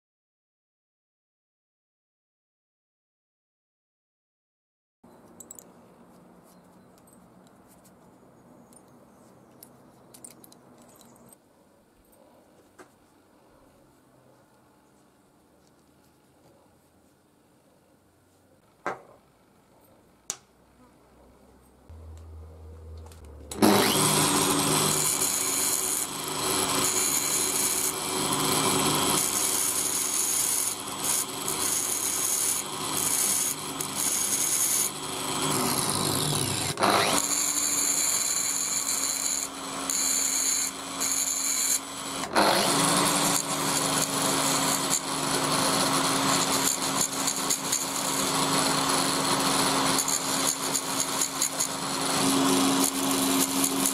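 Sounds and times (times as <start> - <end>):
angle grinder grinding metal: 21.9 - 53.9.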